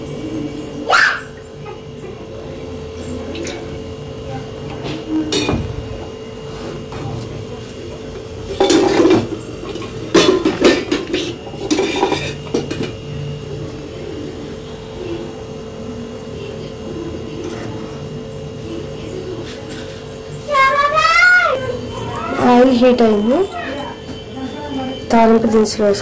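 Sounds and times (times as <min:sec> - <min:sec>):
steady hum: 0:00.0 - 0:26.0
metal pots and utensils clinking: 0:08.5 - 0:13.0.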